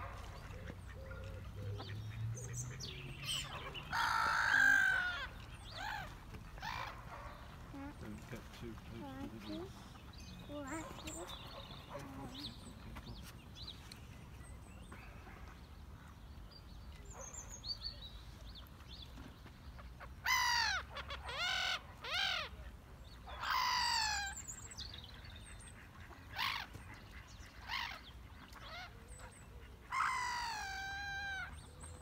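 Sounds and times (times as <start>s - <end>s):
harsh water bird calls: 0.0s - 12.6s, 23.2s - 32.0s.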